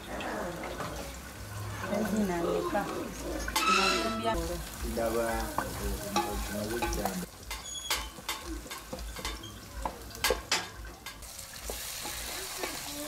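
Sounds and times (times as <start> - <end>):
onions sizzling in oil: 0.0 - 13.0
wooden spoon scraping a pot: 3.4 - 4.4.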